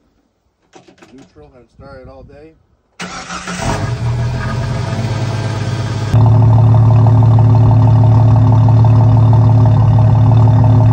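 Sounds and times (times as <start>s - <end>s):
car engine idling at exhaust: 4.1s - 10.9s.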